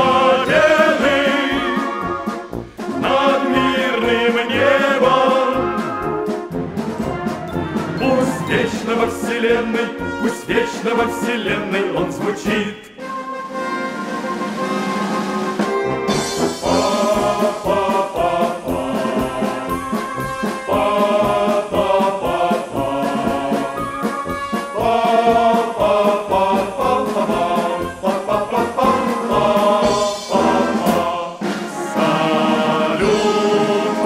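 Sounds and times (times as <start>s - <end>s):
steady beat: 0.0s - 11.1s, 16.1s - 23.8s
orchestral backing with brass: 0.0s - 34.0s.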